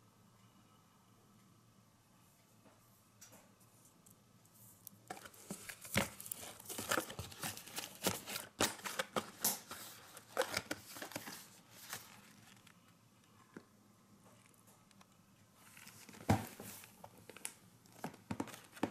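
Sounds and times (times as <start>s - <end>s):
cardboard boxes being handled: 5.1s - 12.3s.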